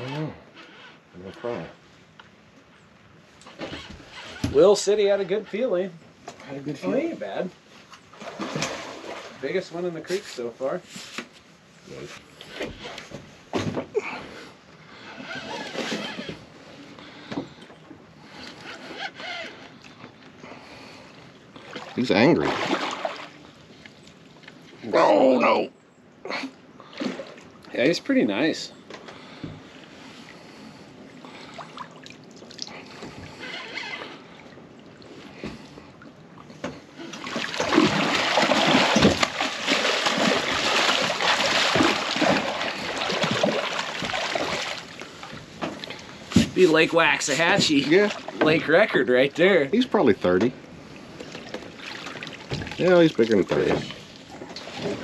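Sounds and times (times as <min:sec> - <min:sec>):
fish thrashing and splashing: 0:21.6 - 0:24.6, 0:36.9 - 0:46.1, 0:51.2 - 0:55.0.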